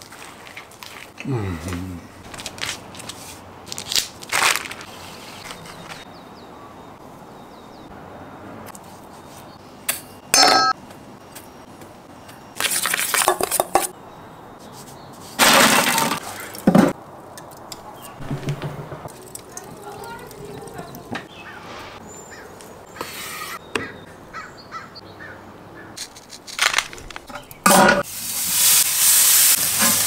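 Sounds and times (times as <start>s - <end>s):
rustling and scraping: 2.2s - 6.1s, 26.0s - 27.6s
glass lid clinking on metal bowl: 10.4s - 10.7s.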